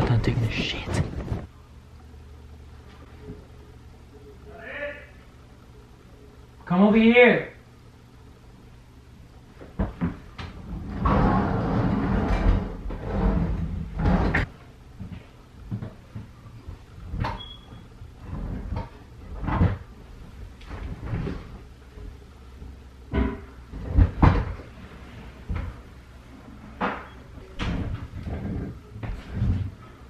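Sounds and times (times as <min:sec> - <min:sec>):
knocks and thumps: 0:23.1 - 0:24.7.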